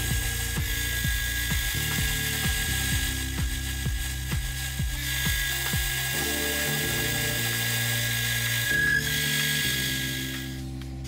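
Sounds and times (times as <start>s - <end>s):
metal lathe hissing and whining: 0.0s - 10.6s
background music: 0.0s - 11.0s.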